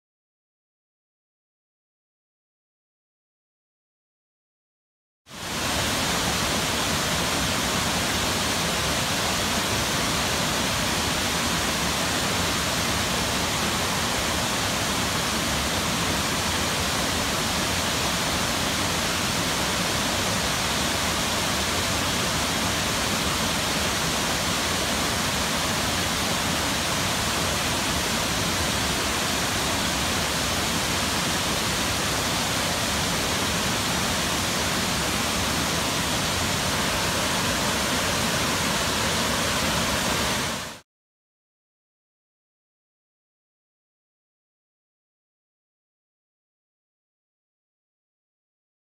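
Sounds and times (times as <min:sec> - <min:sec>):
waterfall pouring into pool: 0:05.3 - 0:40.8.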